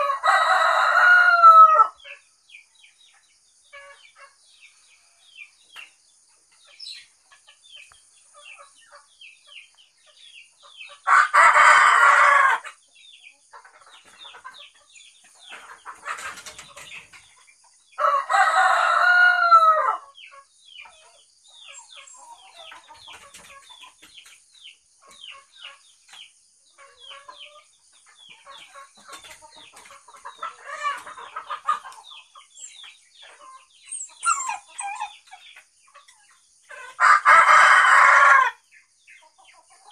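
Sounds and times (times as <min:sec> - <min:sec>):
rooster crowing: 0:00.0 - 0:02.0, 0:18.0 - 0:20.0, 0:37.0 - 0:38.6
small birds chirping: 0:01.8 - 0:39.9.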